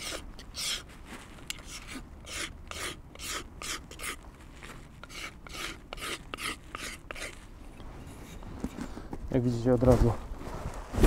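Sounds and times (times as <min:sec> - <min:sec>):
knife scraping wooden handle: 0:00.0 - 0:08.8.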